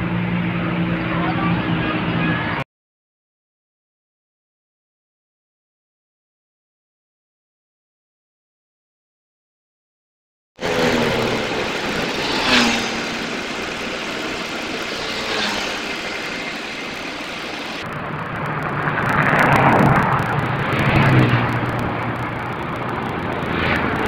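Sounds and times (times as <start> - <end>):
vehicle engines humming: 0.0 - 2.6, 10.6 - 24.0.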